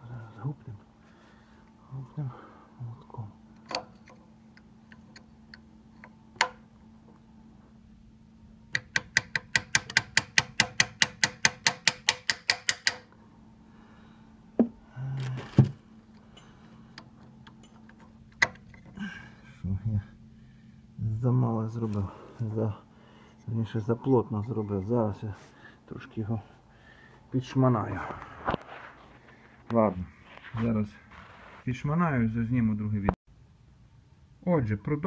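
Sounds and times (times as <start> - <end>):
metal parts knocking: 8.8 - 13.1.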